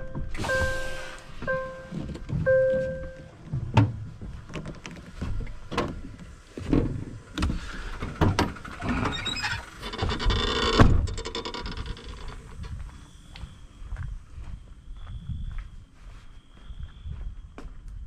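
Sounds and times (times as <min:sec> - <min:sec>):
truck cab door shutting: 0:00.1 - 0:09.6
knocks clicks and rustling: 0:03.4 - 0:12.8.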